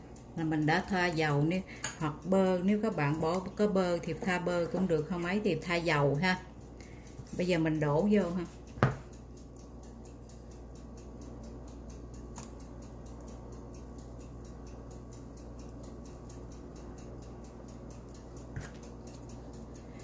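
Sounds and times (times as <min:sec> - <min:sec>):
faint even ticking: 0:00.0 - 0:20.0
low background hum: 0:00.0 - 0:20.0.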